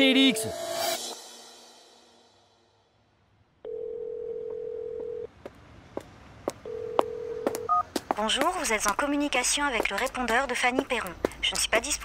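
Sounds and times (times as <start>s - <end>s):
telephone ringing tone: 3.6s - 5.3s, 6.6s - 7.8s.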